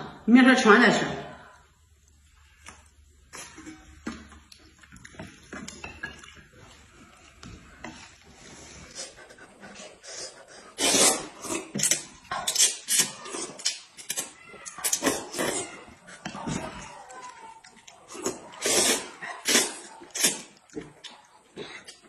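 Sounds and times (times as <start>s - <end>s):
noodles being slurped: 8.0s - 16.0s, 17.2s - 20.7s.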